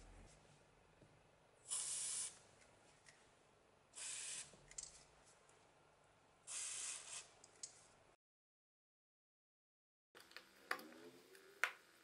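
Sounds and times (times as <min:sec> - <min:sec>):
aerosol spray hissing: 0:01.7 - 0:02.4, 0:04.0 - 0:04.5, 0:06.5 - 0:07.3.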